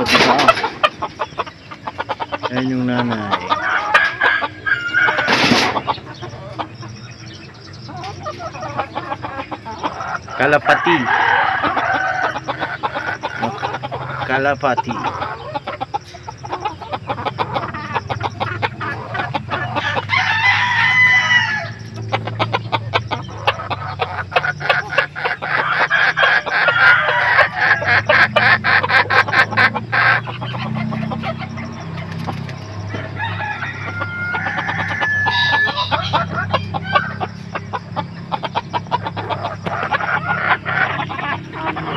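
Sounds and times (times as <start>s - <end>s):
chickens clucking: 0.0s - 41.9s
rooster crowing: 3.1s - 5.4s, 10.0s - 13.6s, 19.6s - 21.9s, 25.4s - 28.9s, 32.9s - 37.3s.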